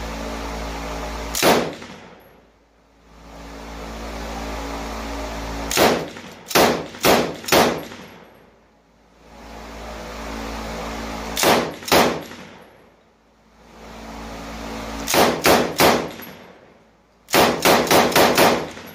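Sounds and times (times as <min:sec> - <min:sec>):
machine gun firing: 0:01.3 - 0:02.2, 0:05.7 - 0:08.4, 0:11.4 - 0:12.8, 0:15.0 - 0:16.6, 0:17.3 - 0:18.9.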